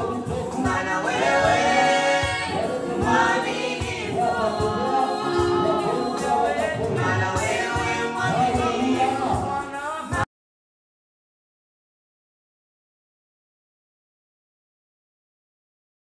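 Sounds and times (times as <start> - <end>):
electronic keyboard: 0.0 - 10.2
group singing gospel song: 0.0 - 10.2.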